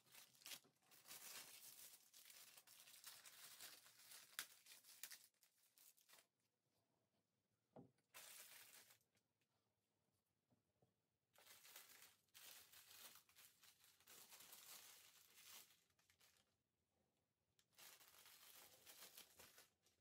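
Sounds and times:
material rustling and crinkling: 0.0 - 6.4, 8.1 - 9.2, 11.4 - 16.6, 17.7 - 20.0.

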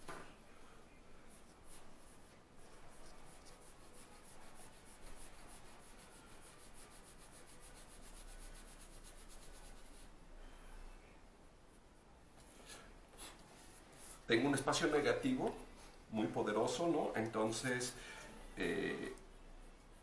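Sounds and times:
pencil scratching on paper: 1.3 - 10.1.

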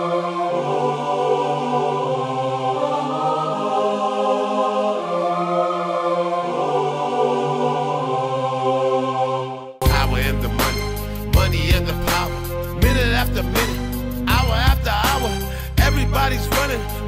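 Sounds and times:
slow held chords music: 9.8 - 17.0.

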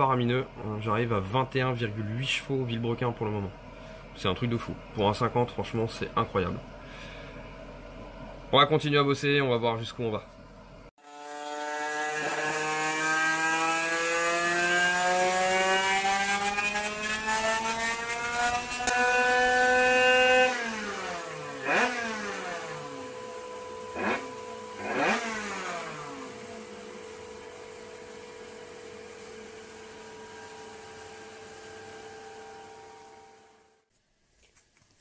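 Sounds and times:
two-stroke engine revving: 11.0 - 33.6.

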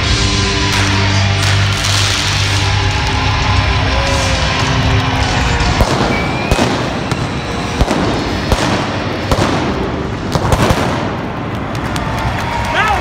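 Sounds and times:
sparks crackling and hissing: 0.7 - 12.2
pyrotechnic bangs: 4.1 - 11.9.

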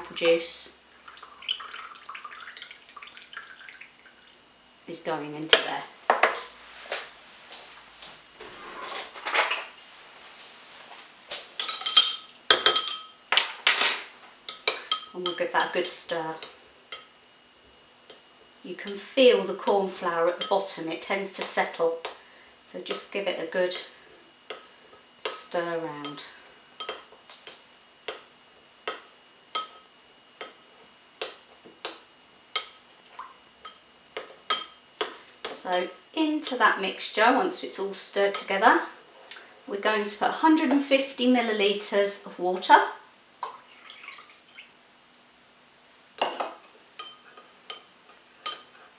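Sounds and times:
metal spoon clinking against glass bowl: 11.6 - 13.2, 26.8 - 27.1, 29.6 - 30.6, 47.0 - 48.7.

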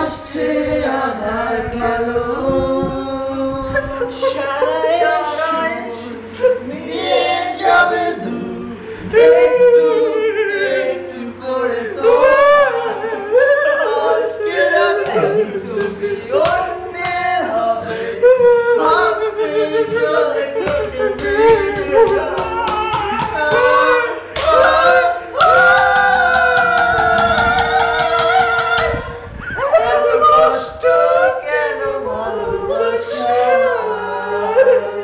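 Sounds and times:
man singing strained: 12.2 - 30.5.

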